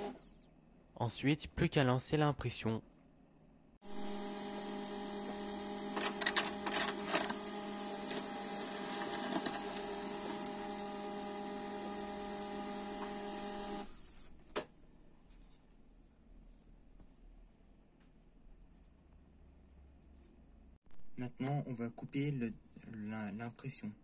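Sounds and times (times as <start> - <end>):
laser printer motor humming: 3.8 - 13.9
printer rattling: 4.4 - 13.8
printer click: 5.9 - 10.9.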